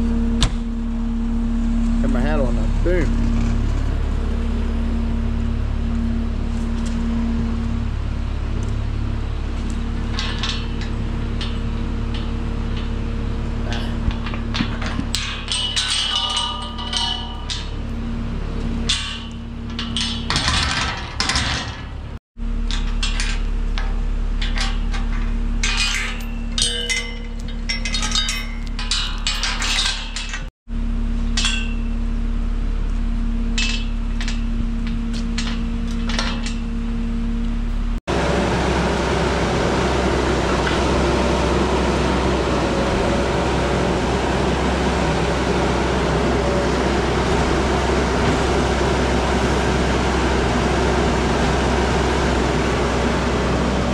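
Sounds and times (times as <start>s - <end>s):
skid loader engine running: 0.0s - 53.9s
metallic clinks and rattles: 9.7s - 18.1s, 18.8s - 22.0s, 22.6s - 30.5s, 33.6s - 36.8s.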